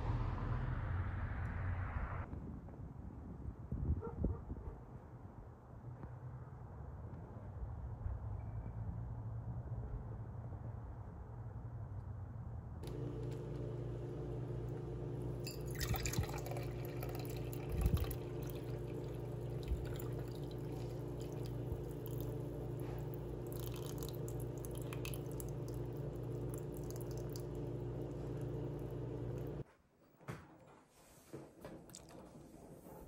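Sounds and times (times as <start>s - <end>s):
steady low hum: 12.8s - 29.6s
tea trickling and splashing: 15.2s - 29.6s.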